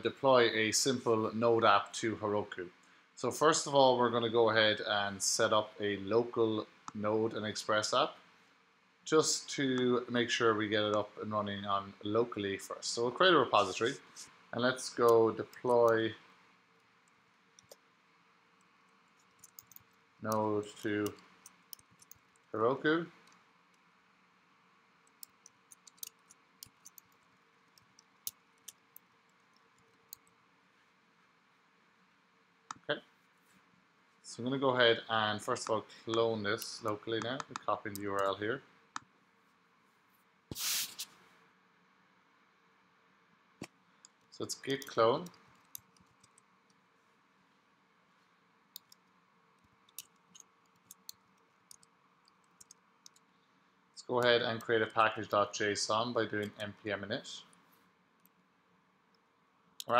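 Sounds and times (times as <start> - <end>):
keyboard typing clicks: 19.2 - 19.9, 25.1 - 27.2.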